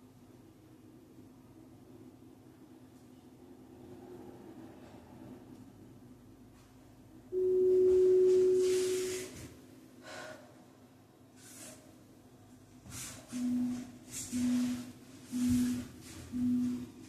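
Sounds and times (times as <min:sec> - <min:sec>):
person breathing: 0:10.0 - 0:10.7
electronic beep: 0:13.4 - 0:16.9.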